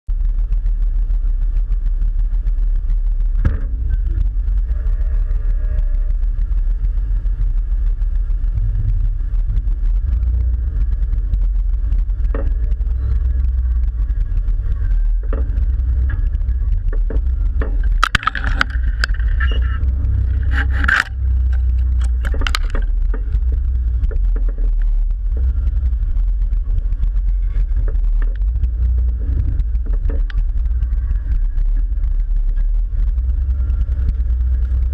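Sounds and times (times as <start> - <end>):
low engine rumble: 0.0 - 34.9
sharp clatters and scrapes: 14.6 - 25.9.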